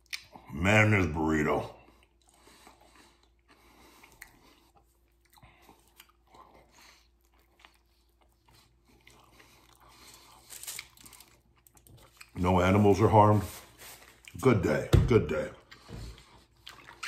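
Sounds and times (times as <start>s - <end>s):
chewing food: 1.7s - 12.6s, 15.6s - 17.0s.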